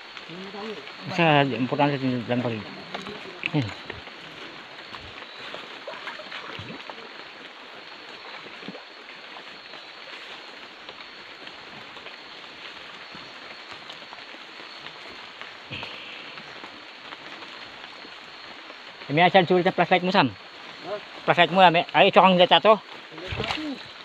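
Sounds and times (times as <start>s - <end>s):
footsteps through undergrowth: 0.0s - 24.0s
steady forest hiss: 0.0s - 24.0s.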